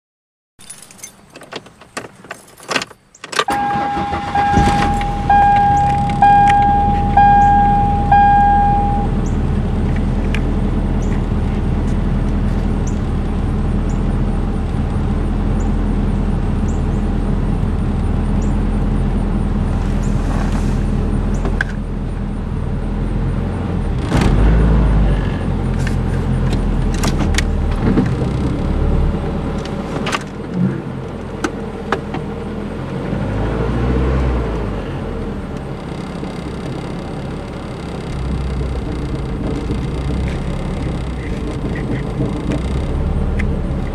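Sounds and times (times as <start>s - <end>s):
dashboard warning chime: 3.5s - 9.4s
car engine idling unevenly: 3.5s - 24.0s, 35.2s - 43.9s
knocks and rattles: 38.8s - 43.0s.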